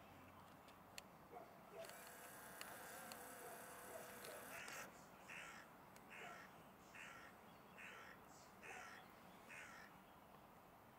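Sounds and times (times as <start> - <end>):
bird harsh calls: 3.5 - 9.9.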